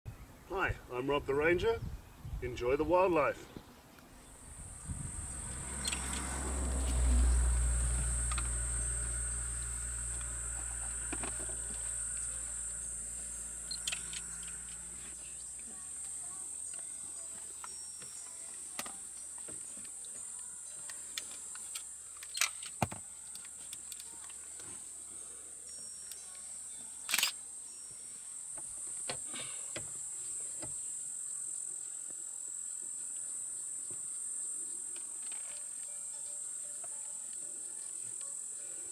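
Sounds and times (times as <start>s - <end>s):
insects droning: 4.2s - 38.9s
deep music sting: 4.6s - 15.2s.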